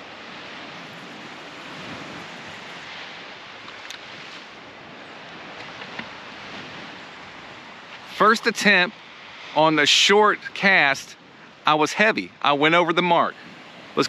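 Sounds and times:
wind on microphone: 0:00.0 - 0:09.6, 0:13.3 - 0:14.0
surf washing onto sand beach: 0:00.0 - 0:14.0
faint sharp clicks: 0:03.7 - 0:04.1.

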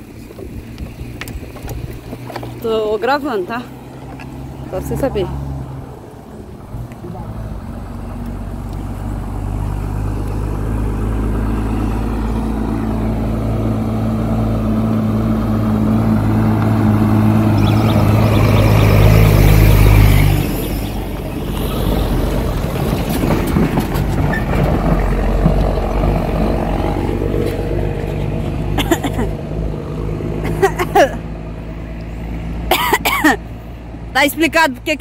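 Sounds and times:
truck diesel engine approaching: 0:00.0 - 0:35.0
rough rushing noise: 0:15.6 - 0:30.1.

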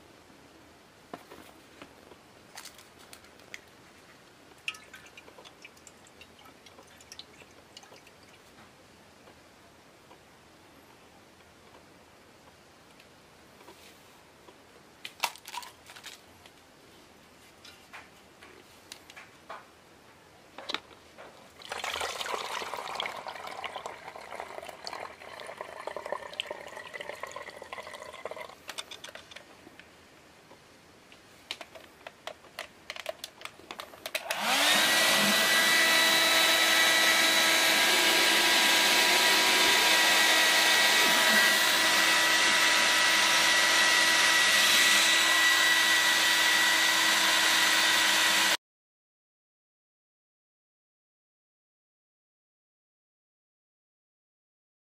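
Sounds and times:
liquid splashing and pouring: 0:04.6 - 0:08.5, 0:21.6 - 0:28.6
hair dryer whining: 0:34.2 - 0:48.6.

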